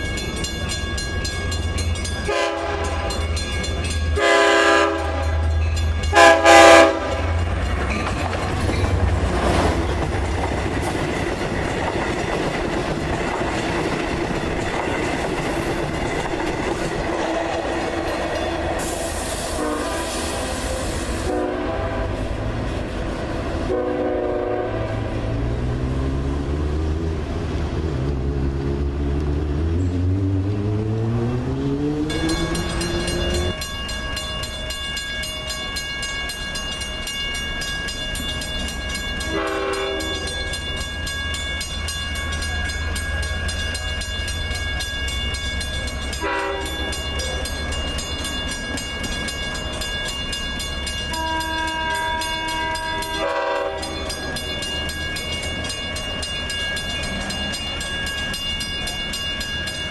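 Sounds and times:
diesel locomotive accelerating: 0.0s - 59.9s
train horn: 2.2s - 3.3s, 4.2s - 7.5s, 17.2s - 22.6s, 23.6s - 25.4s, 39.2s - 40.4s, 46.2s - 47.0s, 51.1s - 54.2s
steady high ringing: 32.0s - 59.9s.

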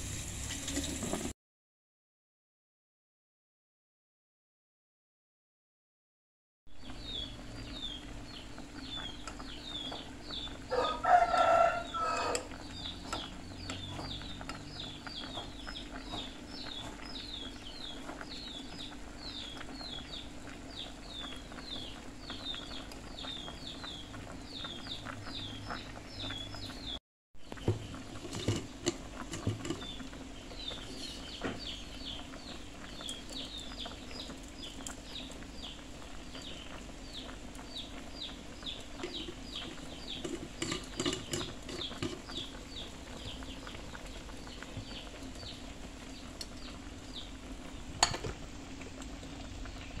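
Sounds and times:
rooster crowing: 10.7s - 12.6s.

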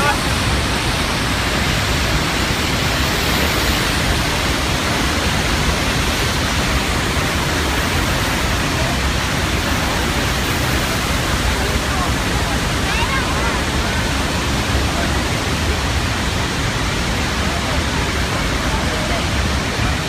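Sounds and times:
waterfall rushing: 0.0s - 20.0s.

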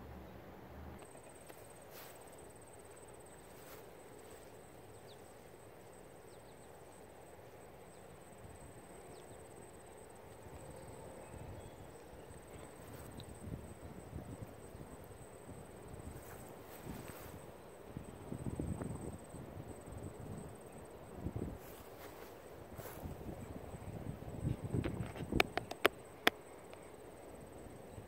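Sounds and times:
faint outdoor ambience: 0.0s - 28.0s
faint clicks: 24.8s - 26.9s.

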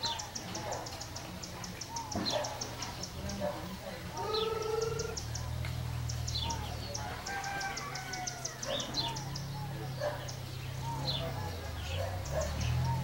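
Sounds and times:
birds chirping: 0.0s - 13.0s
rooster crowing: 6.9s - 9.1s.

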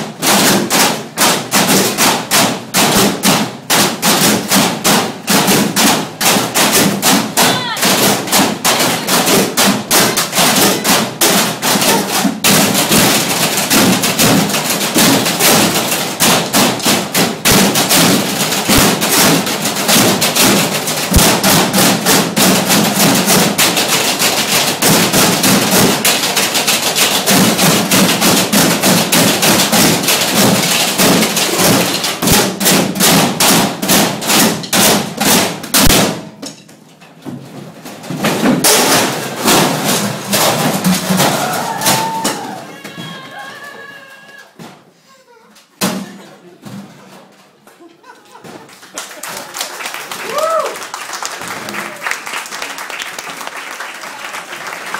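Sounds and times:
drumming on metal trash cans: 0.0s - 43.6s.

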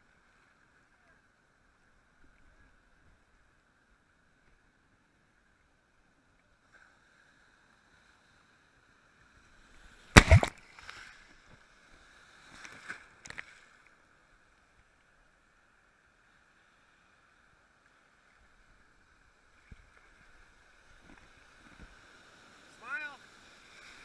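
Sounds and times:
water splashing against camera: 10.2s - 11.0s.

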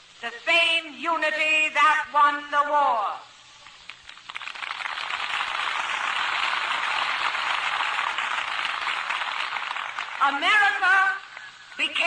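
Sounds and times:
large crowd applauding: 3.9s - 10.4s.

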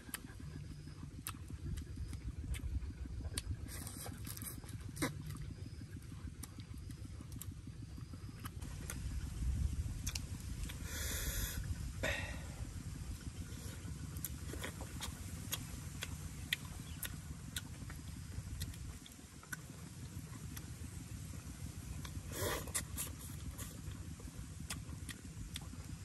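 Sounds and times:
wind rumble on microphone: 7.9s - 19.1s.

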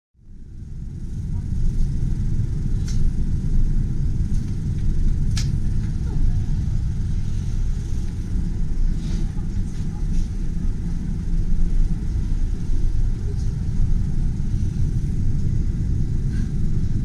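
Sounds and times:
low rumble inside moving train: 0.2s - 17.0s.

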